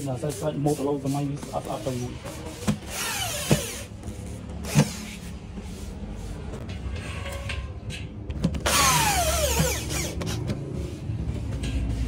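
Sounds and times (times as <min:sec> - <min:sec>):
electric drill drilling into wood: 0:08.6 - 0:10.2.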